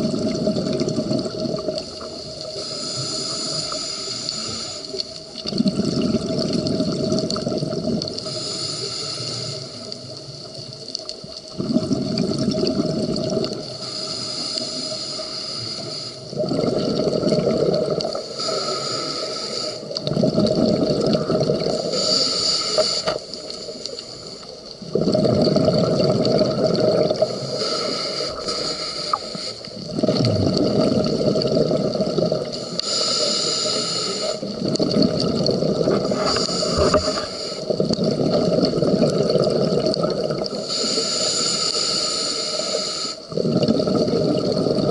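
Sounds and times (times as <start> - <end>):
exhaled bubbles underwater: 0.0 - 8.6, 9.6 - 14.9, 15.9 - 19.0, 19.6 - 41.9, 42.6 - 44.9
regulator hissing inhale: 1.8 - 5.3, 8.2 - 10.0, 13.7 - 16.4, 18.1 - 20.0, 21.6 - 24.7, 27.2 - 29.8, 32.5 - 34.6, 35.9 - 37.8, 40.5 - 43.3.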